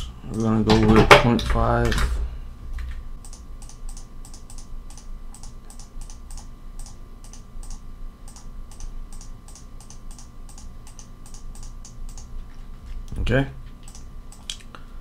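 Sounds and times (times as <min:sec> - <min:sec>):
computer mouse clicking: 0:02.8 - 0:13.2, 0:13.8 - 0:14.7.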